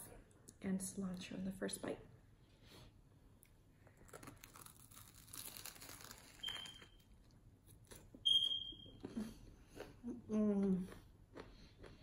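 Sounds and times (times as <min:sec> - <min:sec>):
crusty bread crunching: 0:03.8 - 0:08.2
high-pitched beep: 0:08.3 - 0:09.0.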